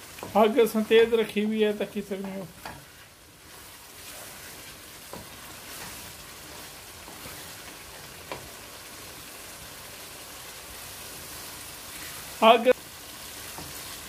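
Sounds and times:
spatula stirring: 0:00.0 - 0:09.0, 0:13.1 - 0:14.0
curry sizzling in wok: 0:00.0 - 0:14.0.

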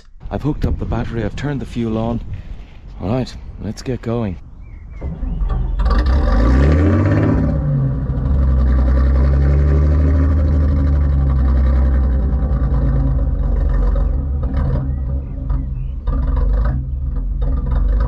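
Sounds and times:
diesel engine starting and idling: 0:04.6 - 0:18.0.

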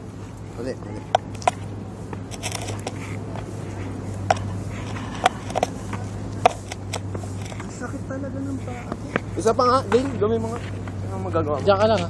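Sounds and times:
steady low hum: 0:00.0 - 0:11.8
longboard clacking on dirt: 0:01.1 - 0:01.6, 0:02.2 - 0:03.5, 0:04.2 - 0:07.8.

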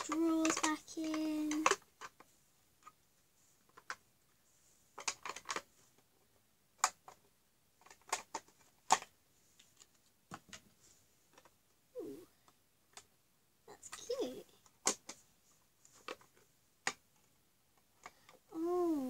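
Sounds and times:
plastic toy parts clicking: 0:00.0 - 0:03.0, 0:05.0 - 0:05.7, 0:06.8 - 0:09.1.

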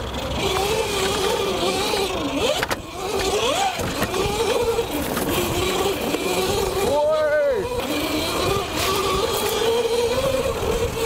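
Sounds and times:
electric motorbike motor whining: 0:00.0 - 0:11.0.

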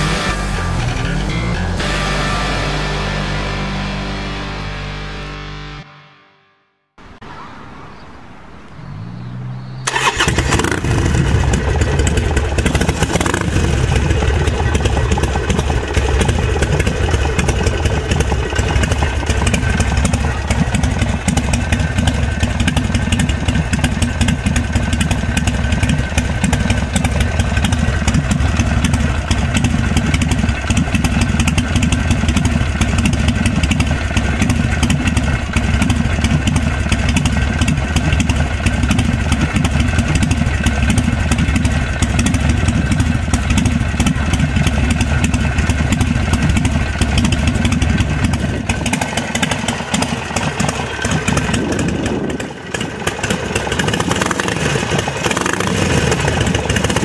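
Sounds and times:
motorcycle engine idling: 0:09.0 - 0:57.0
motorcycle starter cranking: 0:09.8 - 0:57.0.

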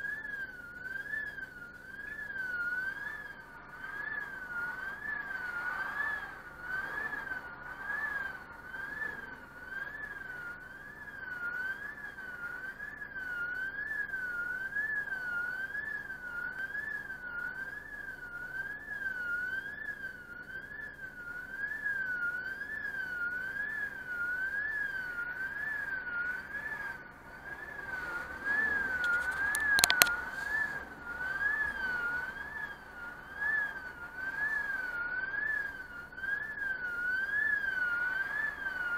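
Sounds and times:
warbling warning signal tone: 0:00.0 - 0:38.9.

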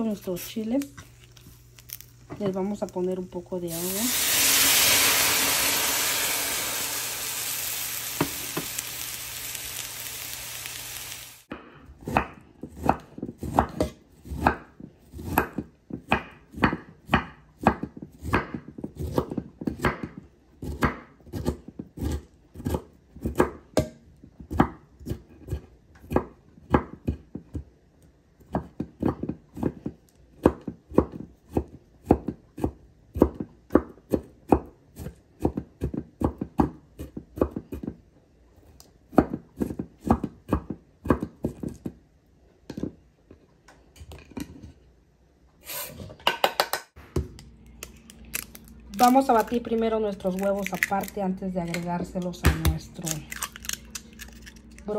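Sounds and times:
water hissing in hot skillet: 0:03.6 - 0:11.5
knife chopping on wooden board: 0:11.5 - 0:27.6, 0:28.4 - 0:38.0, 0:39.1 - 0:41.9.

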